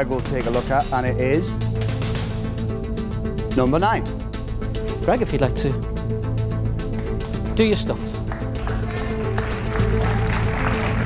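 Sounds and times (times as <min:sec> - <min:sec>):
sustained backing music: 0:00.0 - 0:11.0.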